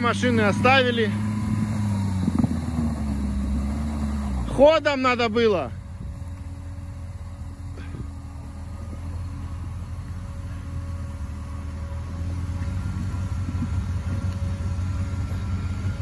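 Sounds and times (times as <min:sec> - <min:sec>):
vehicle engine running at low revs: 0:00.0 - 0:16.0.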